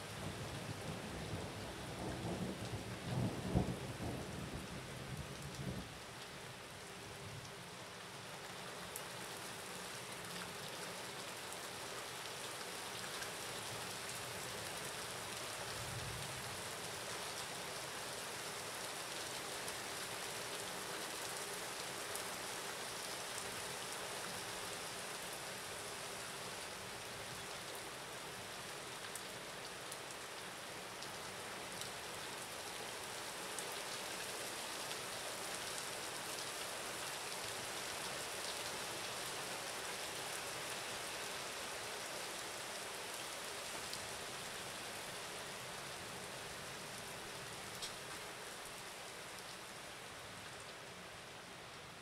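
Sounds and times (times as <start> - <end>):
steady rain falling: 0.0 - 52.0.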